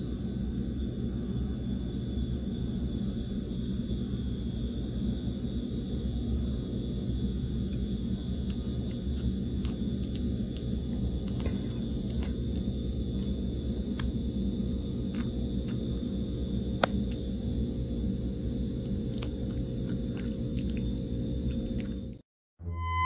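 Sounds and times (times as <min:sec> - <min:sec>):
kitten chewing with clicks: 0:07.8 - 0:17.7, 0:18.5 - 0:22.2.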